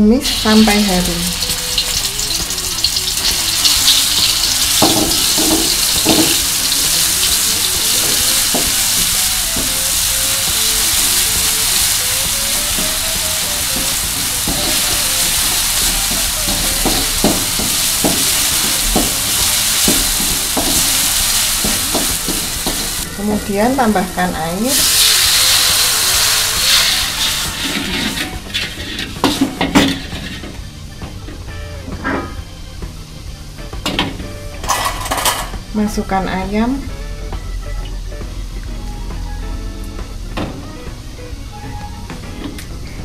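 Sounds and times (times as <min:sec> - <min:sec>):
paste sizzling in hot oil: 0:00.2 - 0:30.6
spatula scraping wok: 0:00.2 - 0:30.8.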